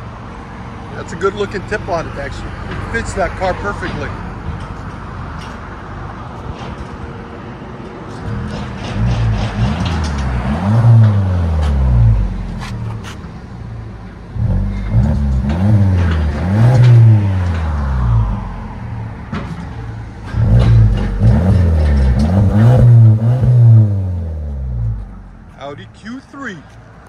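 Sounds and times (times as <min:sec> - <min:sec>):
car exhaust revving: 0:08.2 - 0:25.6.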